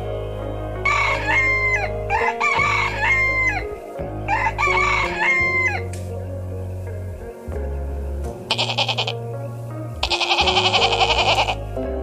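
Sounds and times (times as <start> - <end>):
background music: 0.0 - 12.0
rooster crowing: 0.8 - 5.9, 8.5 - 9.2, 10.0 - 11.6.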